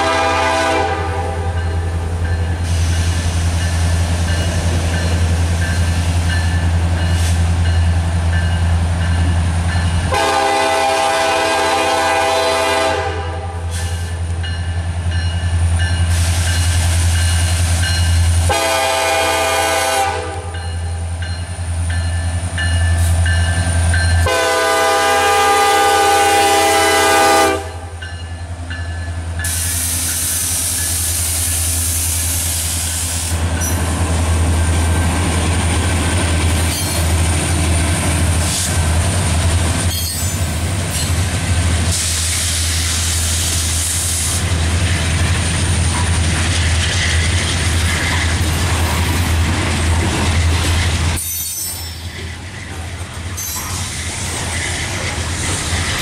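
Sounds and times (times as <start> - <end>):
locomotive horn blasts: 0.0 - 1.6, 10.1 - 13.7, 18.4 - 20.6, 24.2 - 28.0
diesel locomotives rumbling: 0.0 - 56.0.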